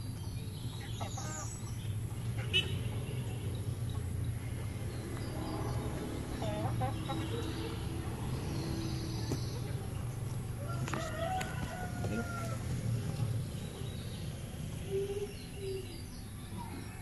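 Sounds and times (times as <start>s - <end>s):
rooster crowing: 10.6s - 12.8s.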